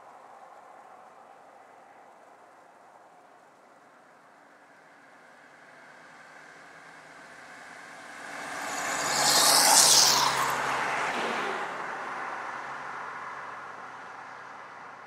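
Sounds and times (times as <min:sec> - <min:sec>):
vehicle passing by: 0:06.7 - 0:13.9.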